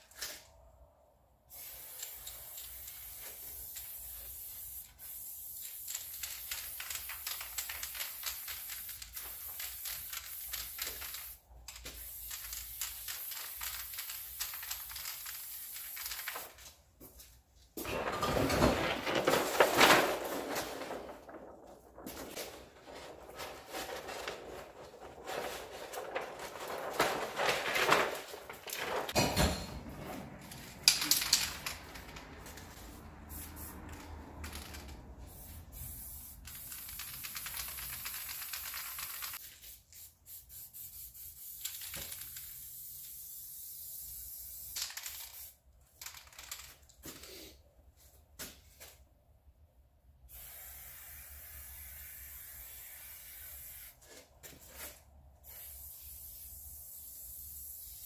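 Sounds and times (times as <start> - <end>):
spray-paint can hissing: 1.5 - 16.4, 32.9 - 33.8, 34.5 - 45.6, 50.3 - 54.0, 55.4 - 58.0
stiff paper rustling and crackling: 17.8 - 29.3.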